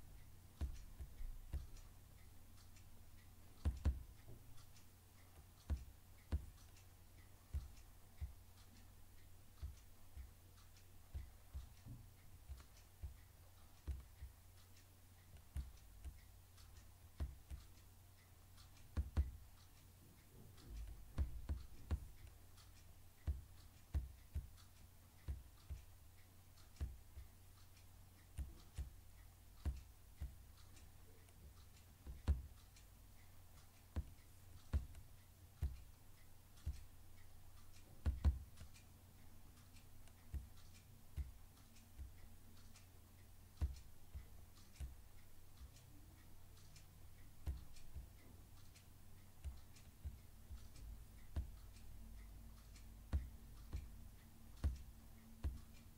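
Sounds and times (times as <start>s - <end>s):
steady low hum: 0.0s - 55.9s
computer mouse clicking: 0.6s - 9.0s, 20.5s - 55.9s.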